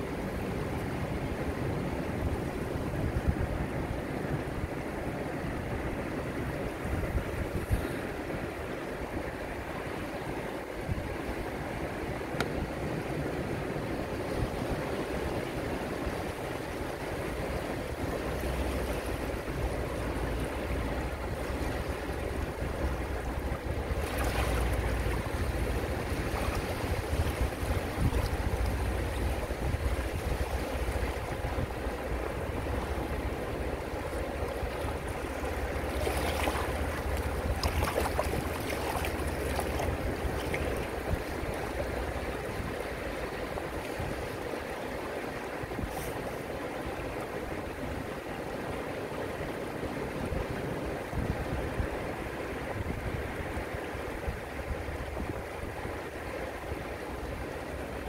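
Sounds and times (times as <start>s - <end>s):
small waves washing over rocks: 12.8s - 48.0s.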